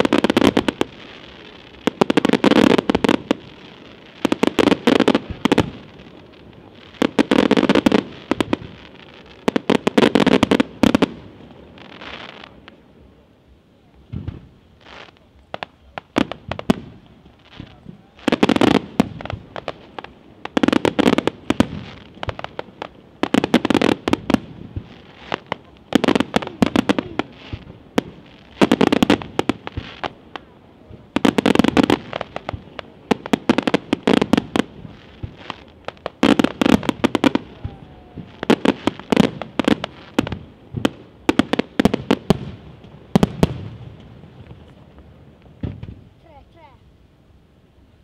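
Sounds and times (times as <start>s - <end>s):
fireworks bangs and crackles: 0.0s - 46.8s.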